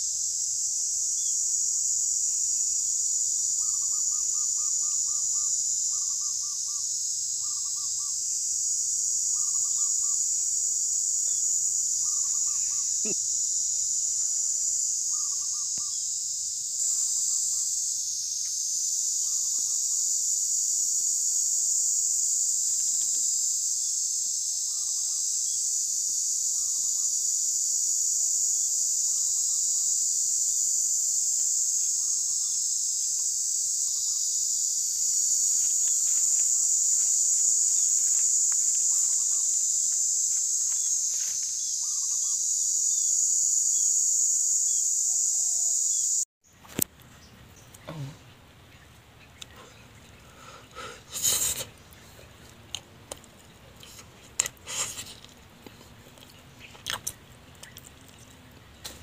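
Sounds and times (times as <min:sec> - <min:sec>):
insects droning: 0:00.0 - 0:59.0
bird calling: 0:12.0 - 0:13.2, 0:15.1 - 0:16.0.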